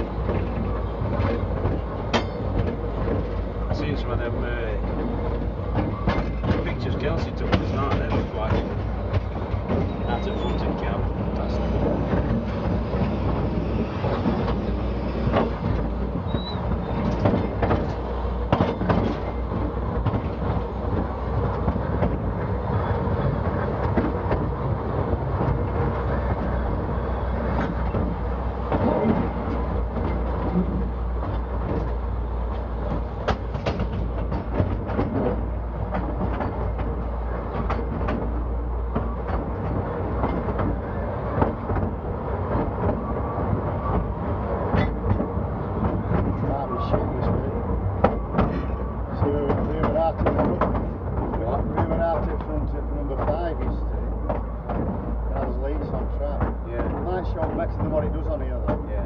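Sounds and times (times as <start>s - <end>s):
train wheels on rails: 0.0s - 59.0s
irregular clicks and knocks: 15.2s - 22.6s, 23.2s - 59.0s.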